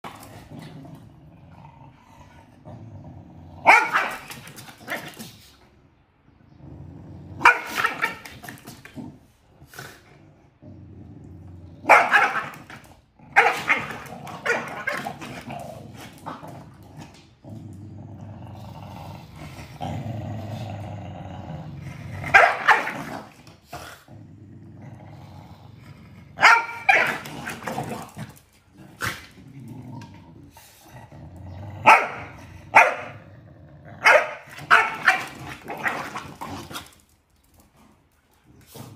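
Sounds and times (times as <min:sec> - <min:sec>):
dogs growling: 0:00.0 - 0:38.9
dogs barking sharply: 0:03.6 - 0:04.5, 0:07.4 - 0:08.3, 0:11.8 - 0:15.2, 0:22.3 - 0:23.2, 0:26.4 - 0:27.6, 0:31.8 - 0:33.2, 0:34.0 - 0:36.2.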